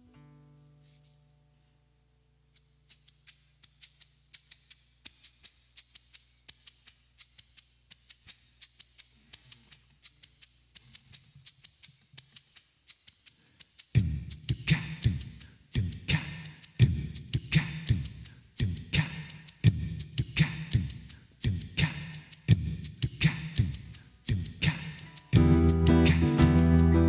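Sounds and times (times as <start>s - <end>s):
crisp percussion ticks: 2.5s - 27.0s
kick drum: 14.0s - 14.3s, 16.8s - 24.8s
bass groove: 14.0s - 27.0s.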